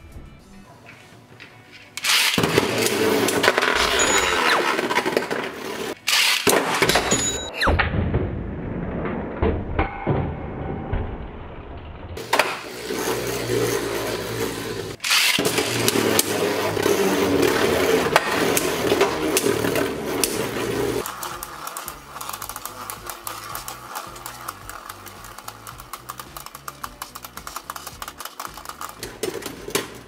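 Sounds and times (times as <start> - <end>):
spinning tops whirring on plastic: 2.0 - 7.4, 12.2 - 30.0
tops clicking and rattling: 14.9 - 30.0.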